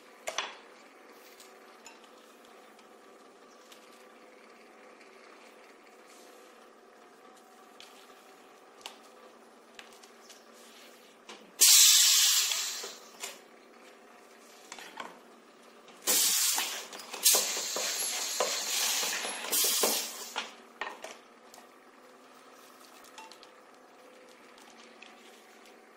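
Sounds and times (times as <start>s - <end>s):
pneumatic air hissing: 11.6s - 13.4s, 16.0s - 20.6s.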